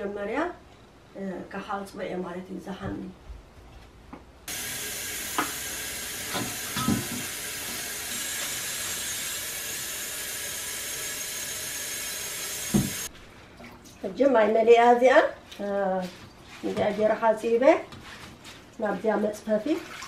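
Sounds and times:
faucet running into metal bowl: 4.5s - 13.1s.

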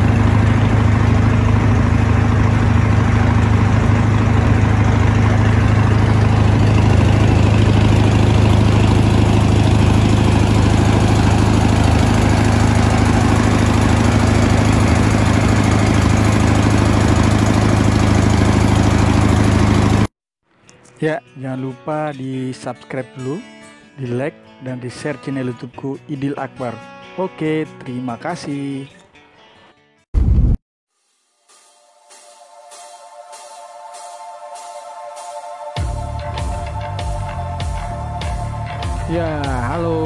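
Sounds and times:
boat engine humming: 0.0s - 20.1s, 35.8s - 40.0s.

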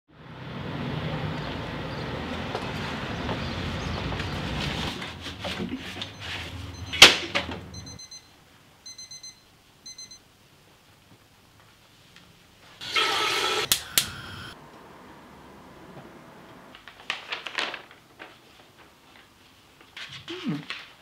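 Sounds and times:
traffic noise: 0.1s - 8.0s, 12.8s - 18.2s
alarm clock beeping: 6.1s - 7.1s, 7.7s - 8.3s, 8.9s - 10.2s
newspaper rustling: 16.7s - 21.0s.

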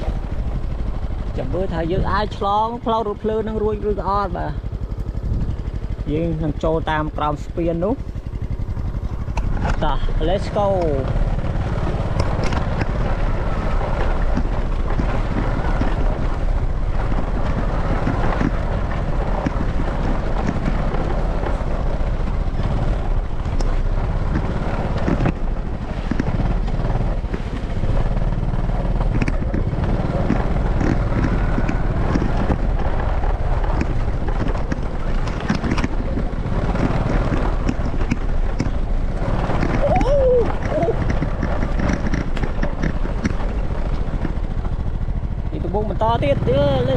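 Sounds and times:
small motorbike engine: 0.0s - 46.9s
wind on microphone: 5.1s - 5.8s, 29.0s - 45.6s.

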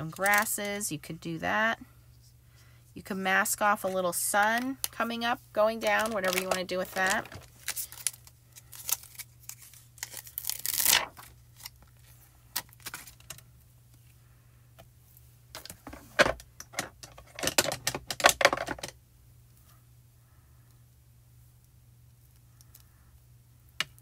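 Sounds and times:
plastic peeling and rustling: 0.1s - 0.6s, 3.8s - 14.1s.

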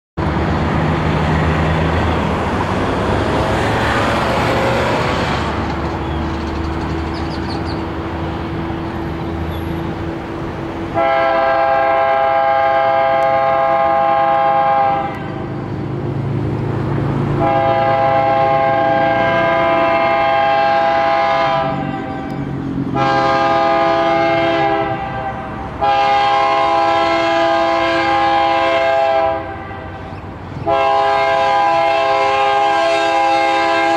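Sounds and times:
diesel locomotive engine running: 0.2s - 33.9s
train air horn blasts: 10.9s - 15.5s, 17.4s - 33.9s.

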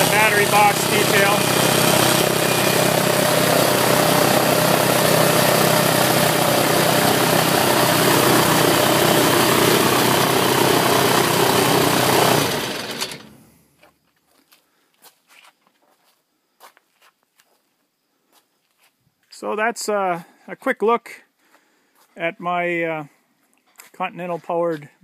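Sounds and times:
aircraft engine and propeller running: 0.0s - 13.4s.

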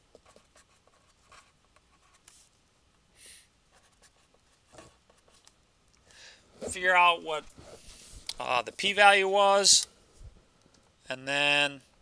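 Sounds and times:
pen scratching on paper: 0.2s - 2.4s, 3.7s - 5.4s
soft hiss: 2.1s - 12.0s.

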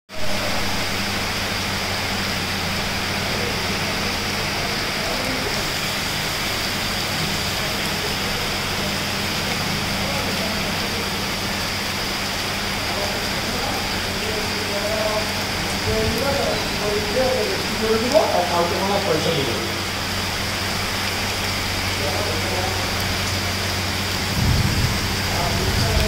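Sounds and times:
heavy rain pouring: 0.1s - 26.0s.

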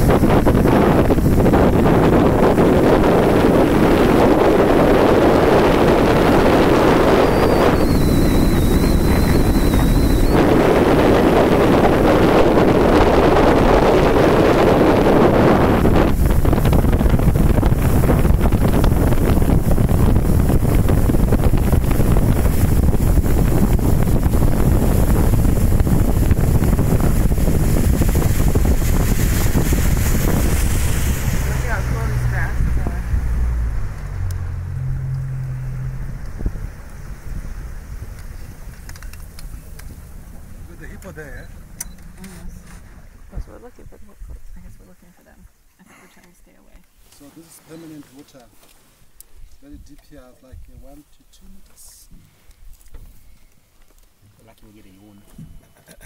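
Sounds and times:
wind buffeting microphone: 0.0s - 45.6s
motorboat rumble: 0.0s - 56.0s
thin high whistle: 7.0s - 10.6s.

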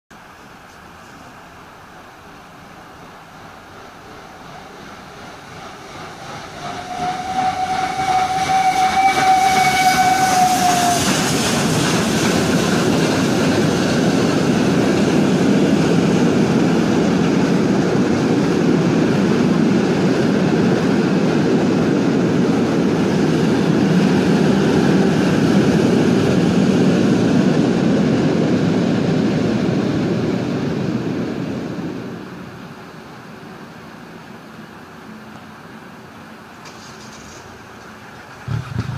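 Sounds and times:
train rumble and wheel clatter: 0.1s - 38.9s
steam locomotive whistle: 6.6s - 11.3s.

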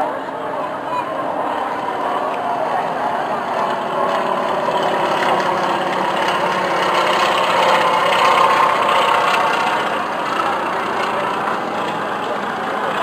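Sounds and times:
propeller aircraft engine overhead: 0.0s - 13.0s.

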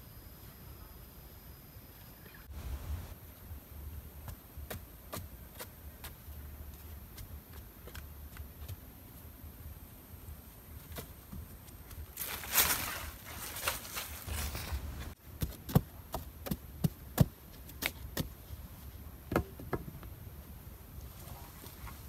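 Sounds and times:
scraping and rustling: 12.2s - 15.2s.

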